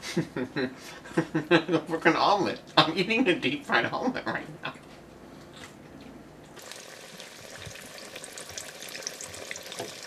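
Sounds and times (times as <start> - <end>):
hot oil sizzling in deep fryer: 6.6 - 10.0.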